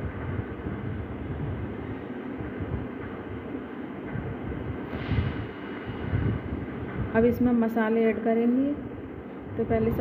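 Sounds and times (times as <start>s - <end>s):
steady low rumble: 0.0s - 10.0s.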